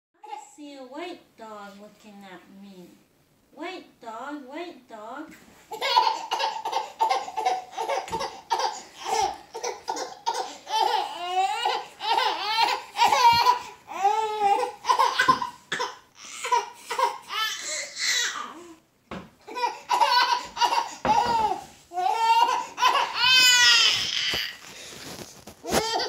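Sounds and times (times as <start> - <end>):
baby belly laughing: 5.7 - 18.5, 19.5 - 24.6, 25.6 - 26.0.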